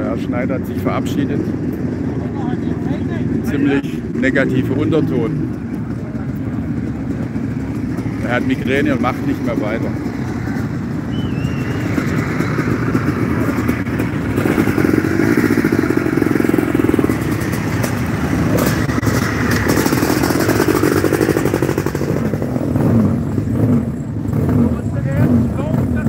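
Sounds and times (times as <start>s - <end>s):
motorcycle engines running: 0.0s - 26.0s
motorcycle passing close by: 7.9s - 26.0s.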